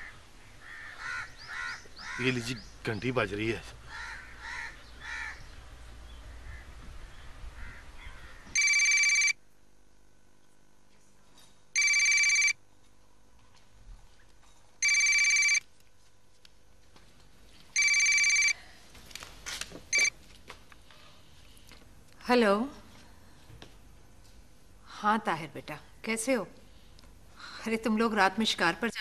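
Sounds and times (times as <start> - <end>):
telephone ringing: 8.6 - 9.4, 11.8 - 12.6, 14.8 - 15.6, 17.8 - 18.6, 19.9 - 20.1.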